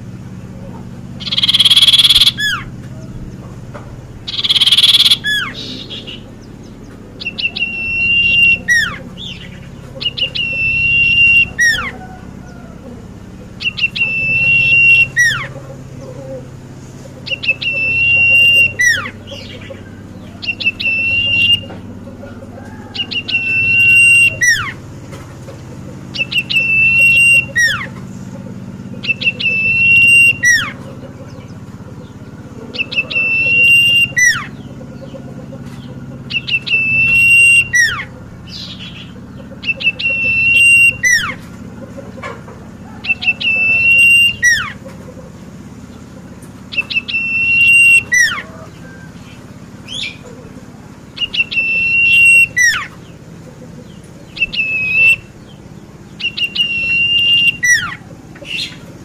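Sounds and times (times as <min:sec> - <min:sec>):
bird singing whistled phrase: 0:01.2 - 0:02.7, 0:04.3 - 0:06.3, 0:07.2 - 0:12.1, 0:13.6 - 0:15.5, 0:17.3 - 0:21.8, 0:23.0 - 0:24.8, 0:26.2 - 0:27.9, 0:29.0 - 0:30.8, 0:32.8 - 0:34.6, 0:36.3 - 0:39.0, 0:39.6 - 0:41.4, 0:43.1 - 0:44.8, 0:46.7 - 0:49.2, 0:51.2 - 0:53.0, 0:54.3 - 0:55.5, 0:56.1 - 0:58.8.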